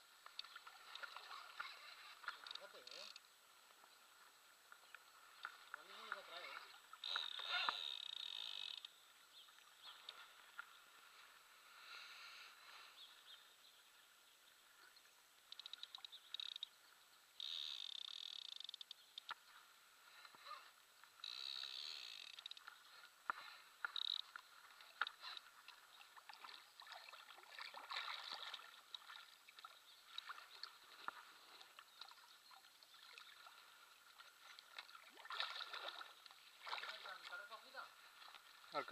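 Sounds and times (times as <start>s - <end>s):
water lapping and splashing: 0.0s - 8.5s, 22.0s - 38.9s
fishing reel clicking and buzzing: 2.4s - 3.3s, 7.0s - 9.0s, 15.5s - 16.8s, 17.4s - 19.3s, 21.2s - 22.7s, 23.8s - 24.3s.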